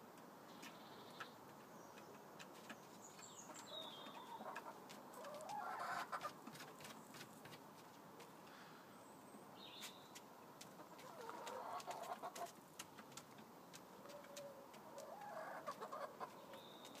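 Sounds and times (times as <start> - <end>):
chickens clucking: 0.6 - 8.5, 9.8 - 17.0.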